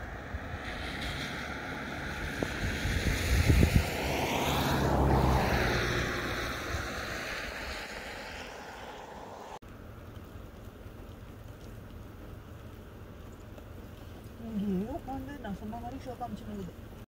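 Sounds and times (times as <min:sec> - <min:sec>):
wind thumps on microphone: 0:00.0 - 0:08.2
vehicle passing by: 0:00.0 - 0:09.6.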